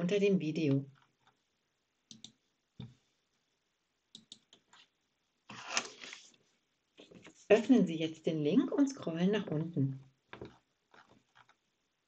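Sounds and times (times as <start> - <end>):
mouse and keyboard clicks: 2.1 - 2.9, 4.2 - 4.9.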